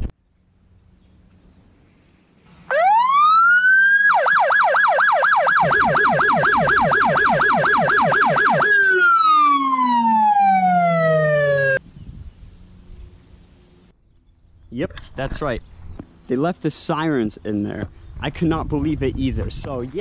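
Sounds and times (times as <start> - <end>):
police siren wailing and yelping: 2.7 - 11.8.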